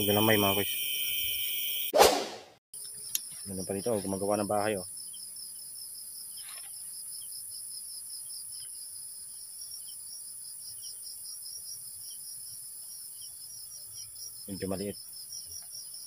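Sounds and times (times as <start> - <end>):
crickets chirping: 0.0 - 1.9, 2.8 - 16.0
high-pitched insect drone: 0.0 - 1.9.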